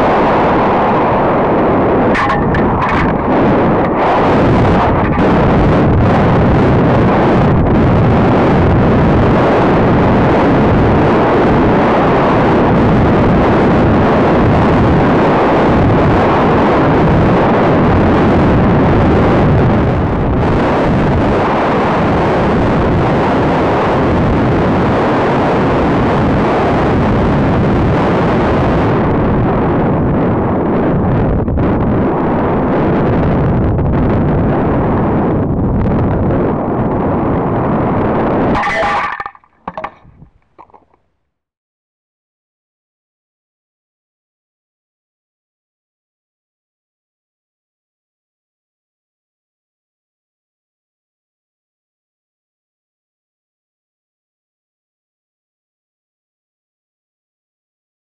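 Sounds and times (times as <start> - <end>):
wind rushing on microphone: 0.0 - 41.0.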